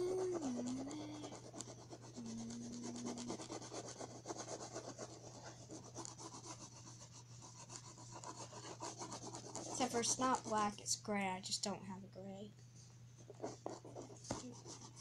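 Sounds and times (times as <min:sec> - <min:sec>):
crayon scratching on paper: 0:00.0 - 0:10.8, 0:13.2 - 0:15.0.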